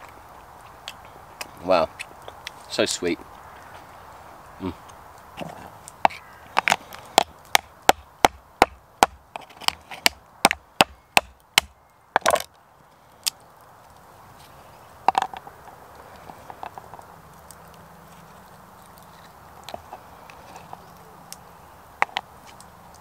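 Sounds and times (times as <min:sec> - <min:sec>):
shell crunch: 0:12.2 - 0:14.1, 0:16.2 - 0:23.0.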